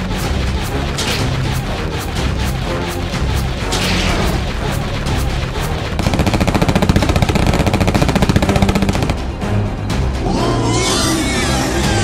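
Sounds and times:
background music: 0.0 - 12.0
cartoon machine-gun fire: 6.0 - 9.2.

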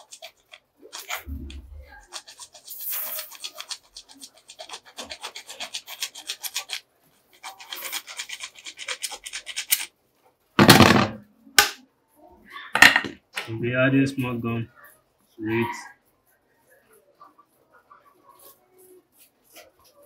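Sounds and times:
hacksaw sawing plastic pipe: 0.0 - 1.3, 2.0 - 6.8.

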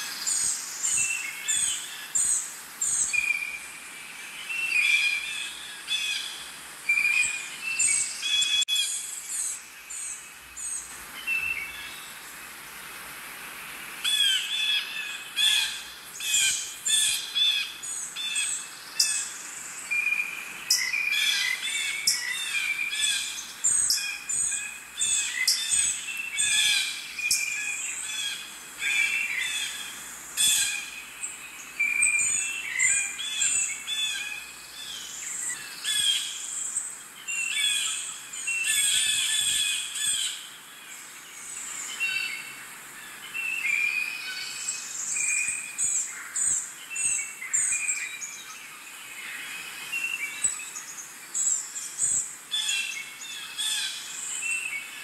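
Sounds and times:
birds chirping and calling: 0.0 - 3.7, 14.1 - 40.5.

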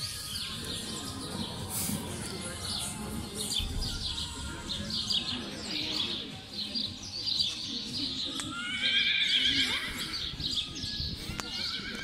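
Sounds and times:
horse whinnying: 8.7 - 10.2.

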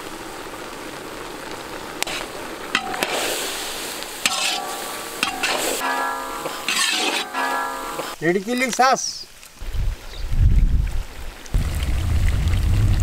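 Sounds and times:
food sizzling in wok: 0.0 - 8.2
metal ladle scraping pan: 2.0 - 8.2.

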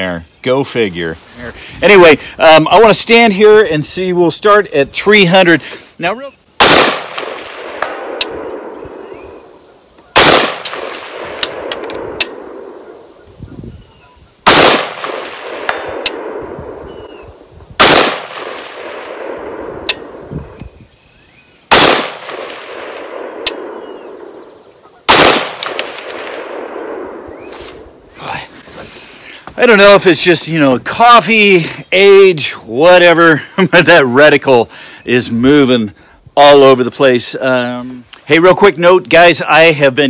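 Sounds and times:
rifle shots echoing: 6.6 - 13.2, 14.4 - 17.0, 17.8 - 20.3, 21.7 - 27.5.

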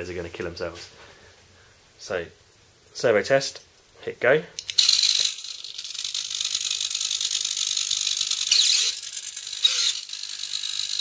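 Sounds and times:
servo motors whirring: 4.8 - 11.0.

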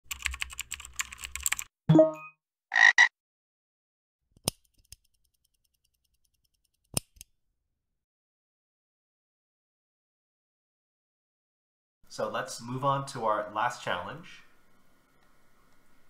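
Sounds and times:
computer keyboard typing: 0.0 - 1.7
frog croaking: 2.7 - 3.1.

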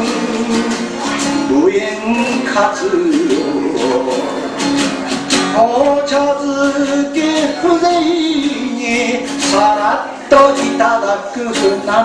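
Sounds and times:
man singing: 0.0 - 12.0
strummed acoustic guitar: 0.0 - 12.0.

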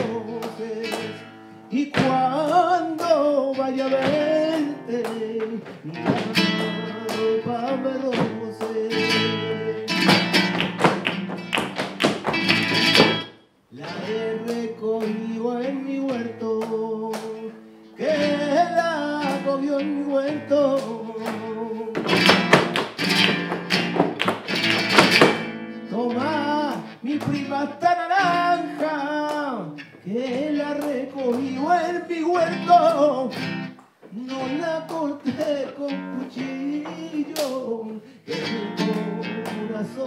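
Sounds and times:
man singing: 0.0 - 10.6, 13.7 - 22.6, 25.8 - 40.0
flamenco guitar: 0.0 - 40.0
shoes stamping on wooden floor: 10.0 - 13.2, 22.0 - 25.5.

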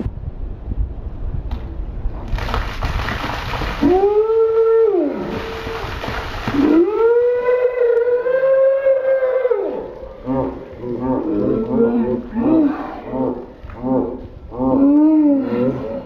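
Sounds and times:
ice water pouring and splashing: 2.3 - 4.2, 5.2 - 6.8.

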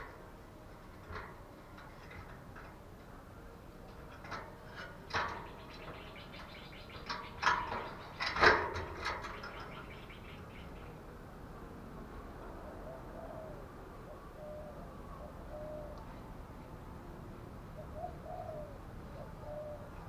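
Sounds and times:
bird knocking in wire cage: 4.2 - 9.9.

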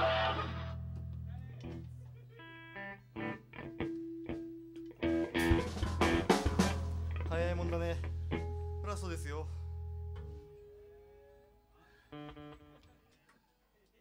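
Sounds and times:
electric guitar notes: 0.0 - 12.9
drum hits: 5.4 - 7.3.

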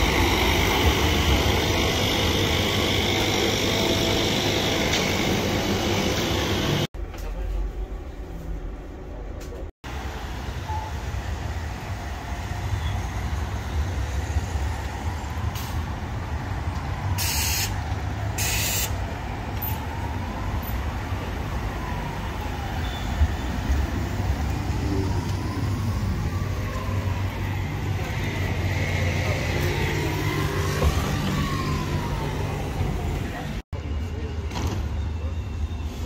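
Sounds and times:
city traffic rumble: 0.0 - 36.0
bus air brake hisses: 17.2 - 17.8, 18.4 - 19.0.

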